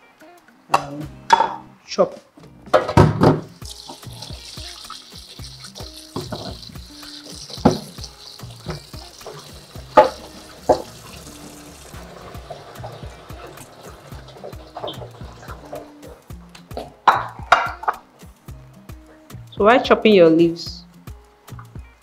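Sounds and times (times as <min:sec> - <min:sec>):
background music: 0:00.0 - 0:22.0
tap water running: 0:03.0 - 0:17.6.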